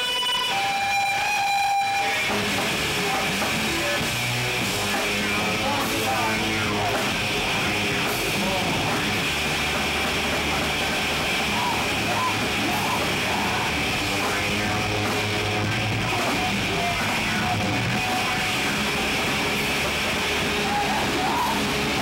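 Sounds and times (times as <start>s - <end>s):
distorted guitars: 0.0s - 22.0s
drums: 0.0s - 22.0s
singer shouting into microphone: 11.5s - 14.9s, 20.4s - 22.0s.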